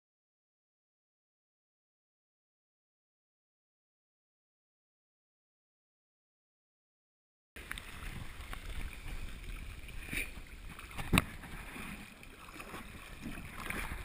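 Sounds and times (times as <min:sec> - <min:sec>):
water sloshing and lapping: 0:07.6 - 0:14.0.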